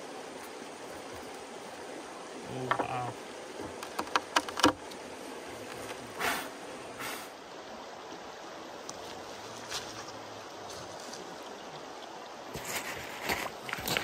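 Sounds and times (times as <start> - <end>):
river flowing: 0.0 - 14.0
sharp clicks and knocks: 2.6 - 3.0, 3.6 - 4.8.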